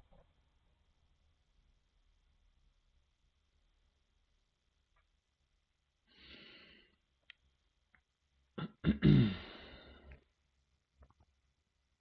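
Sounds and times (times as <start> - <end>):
man breathing: 6.1 - 7.0, 9.2 - 10.2.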